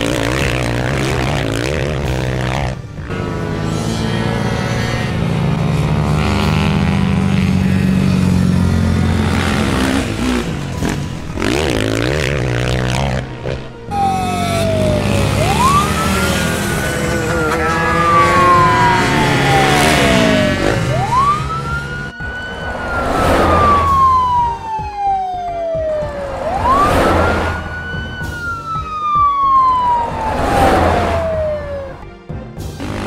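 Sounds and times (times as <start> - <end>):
police siren wailing: 13.9 - 32.2.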